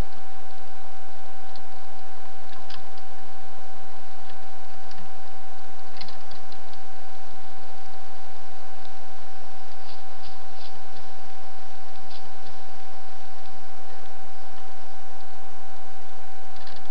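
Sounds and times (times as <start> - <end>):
high electronic whine: 0.0 - 16.9
steady hiss: 0.0 - 16.9
faint clicks and ticks: 1.4 - 1.8, 2.4 - 3.2, 4.2 - 15.4, 16.5 - 16.9.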